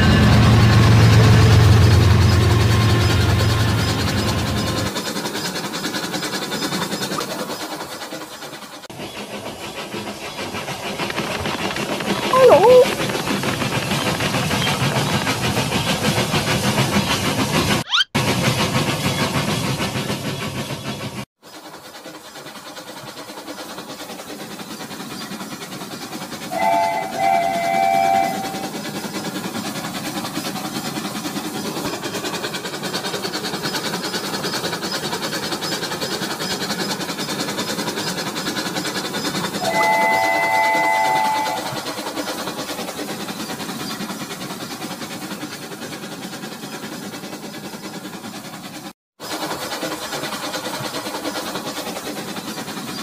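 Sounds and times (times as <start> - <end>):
toy train whirring on plastic track: 4.9 - 18.1, 21.4 - 53.0
electronic train whistle: 26.5 - 28.8, 39.6 - 41.9.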